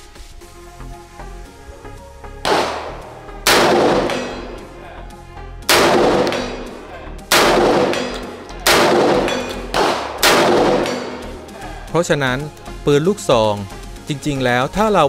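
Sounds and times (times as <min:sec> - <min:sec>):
shotgun shots with ringing echo: 0:02.4 - 0:04.8, 0:05.6 - 0:11.5.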